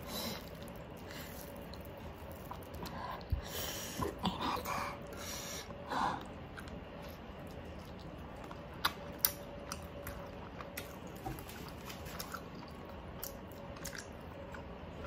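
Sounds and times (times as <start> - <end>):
person chewing: 0.0 - 3.5, 6.1 - 15.0
breathing: 2.8 - 4.0, 4.6 - 6.2.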